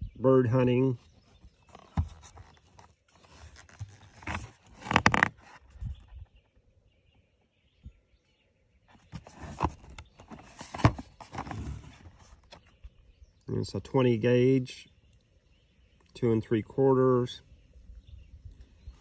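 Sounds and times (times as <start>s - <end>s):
cardboard box rustling and scraping: 1.1s - 6.1s, 8.9s - 12.8s.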